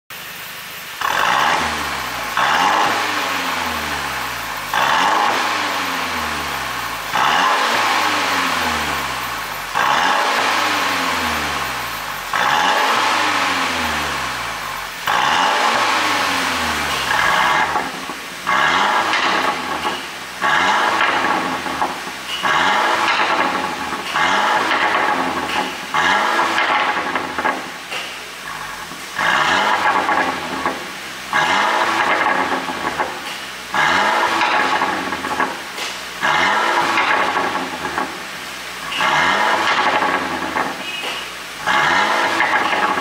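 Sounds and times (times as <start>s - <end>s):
car engine revving: 0.2s - 43.0s
exhaust pops and crackles: 16.8s - 43.0s.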